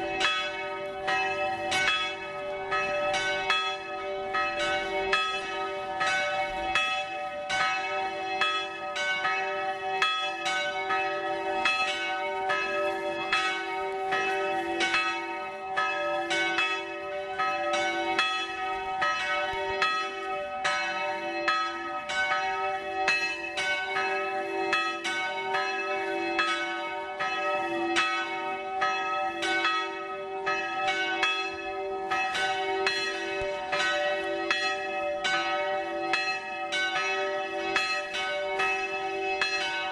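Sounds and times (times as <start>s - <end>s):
church bells pealing: 0.0s - 39.9s.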